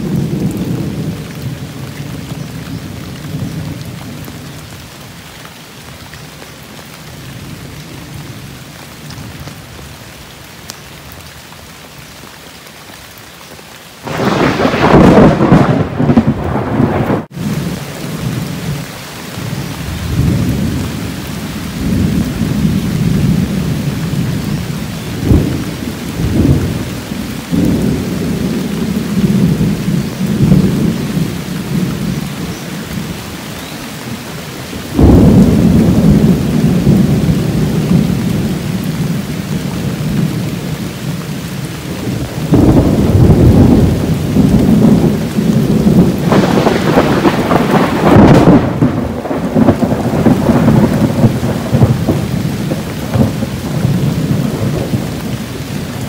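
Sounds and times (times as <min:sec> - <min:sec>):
thunder rumbling: 0:00.0 - 0:04.8, 0:14.0 - 0:33.5, 0:34.2 - 0:56.0
heavy rain: 0:00.0 - 0:56.0
loud thunder peal: 0:14.1 - 0:17.6, 0:35.0 - 0:38.2, 0:42.5 - 0:55.0.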